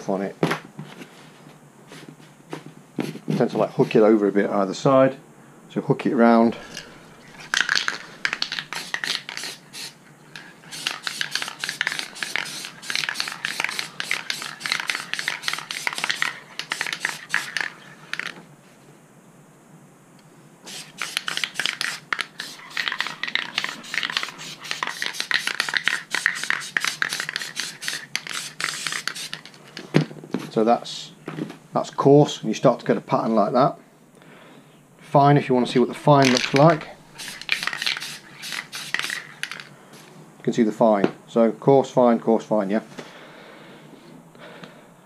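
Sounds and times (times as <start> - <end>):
spray can rattling: 6.6 - 18.4, 20.7 - 29.9, 35.6 - 39.7.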